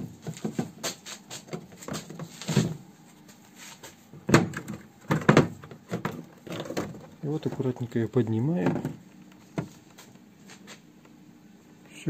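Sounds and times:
plastic housing knocking and scraping: 4.2s - 7.9s, 8.6s - 9.8s.

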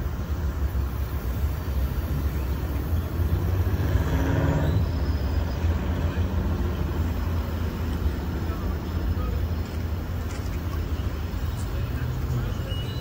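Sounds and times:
train rumbling past: 0.0s - 13.0s.

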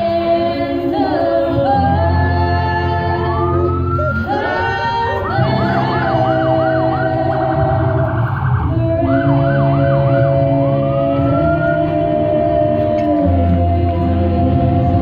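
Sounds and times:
emergency vehicle siren: 2.2s - 13.2s.

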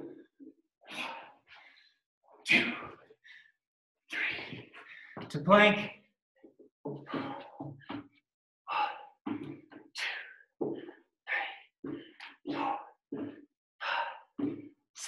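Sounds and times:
man breathing hard: 0.8s - 5.3s, 7.0s - 8.1s, 8.7s - 14.7s.

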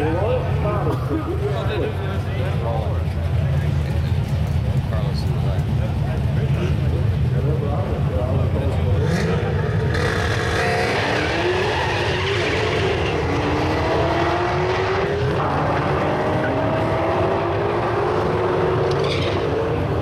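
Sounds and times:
car engine revving: 8.8s - 20.0s.

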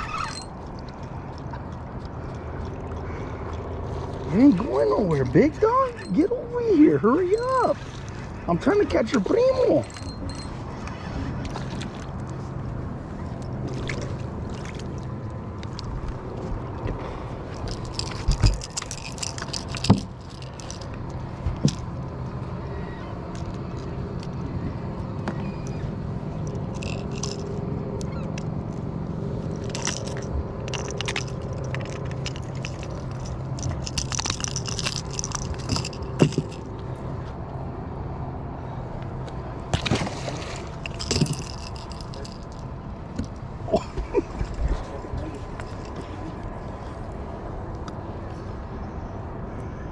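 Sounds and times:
knocks and scraping: 29.6s - 36.8s
fish splashing into water: 39.7s - 40.8s.

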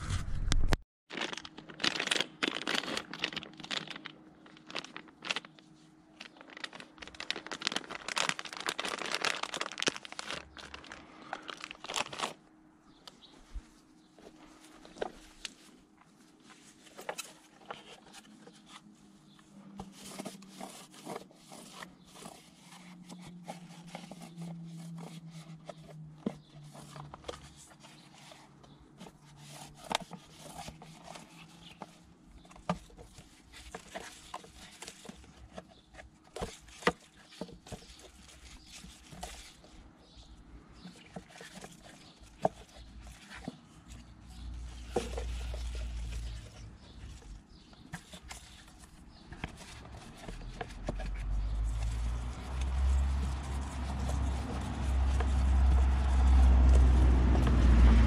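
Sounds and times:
paper towel scraping plastic: 14.2s - 58.0s.

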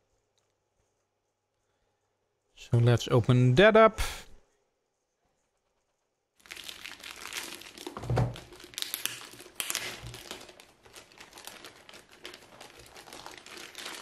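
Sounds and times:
plastic bag crinkling: 6.4s - 14.0s.

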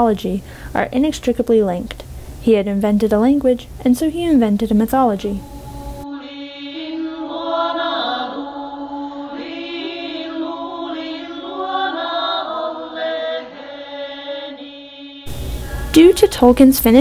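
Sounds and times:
voices chanting long notes: 5.4s - 16.5s
low drone: 15.3s - 16.5s.

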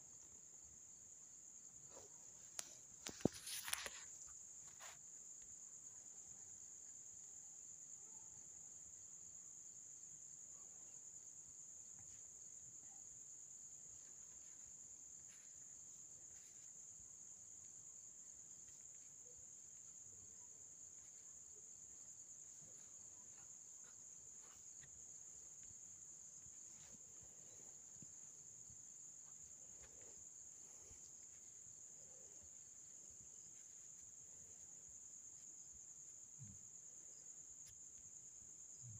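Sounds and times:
faint high-pitched whine: 0.0s - 38.9s
faint ticks: 2.4s - 4.4s.

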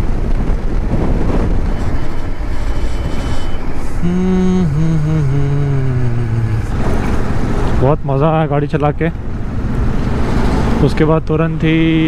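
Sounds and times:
wind rush: 0.0s - 4.1s, 5.2s - 8.1s
motorcycle engine: 0.0s - 11.0s
low tone falling in pitch: 4.0s - 7.1s.

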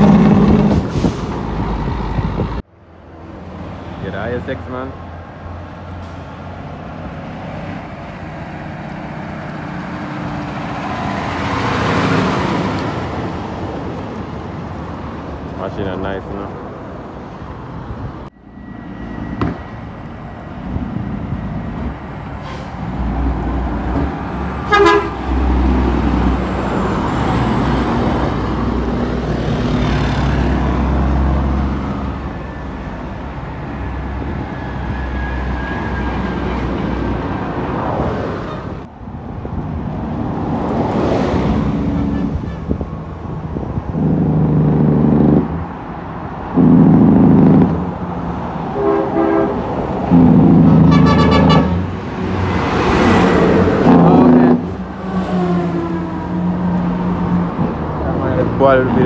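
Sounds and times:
heavy truck engine rumble: 0.0s - 59.0s
traffic passing: 0.0s - 59.0s
vehicle horn blasts: 24.6s - 25.2s, 48.8s - 49.6s, 50.9s - 51.8s.

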